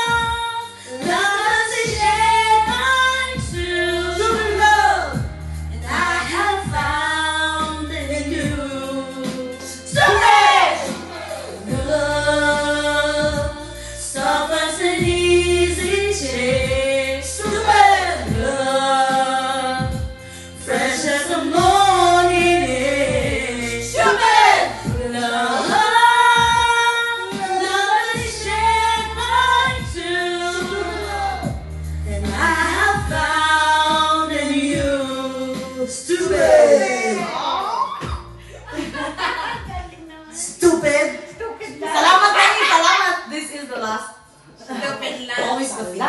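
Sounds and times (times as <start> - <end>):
women singing into microphones: 0.0 - 40.6
karaoke backing track: 0.0 - 46.0.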